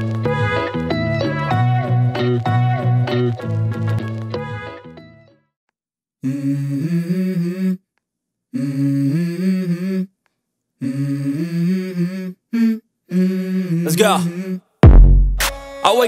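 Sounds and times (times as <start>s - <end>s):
person humming a melody: 6.2s - 7.8s, 8.5s - 10.1s, 10.8s - 14.6s.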